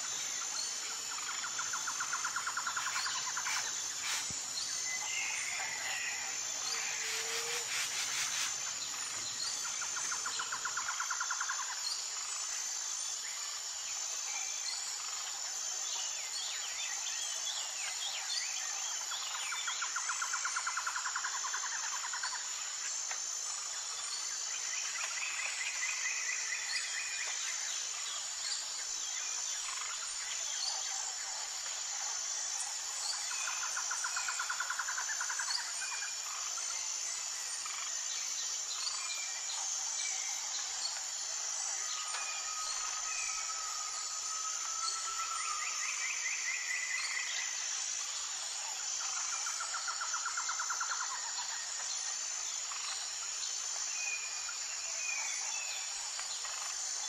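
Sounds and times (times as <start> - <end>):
high insect drone: 0.0 - 57.0.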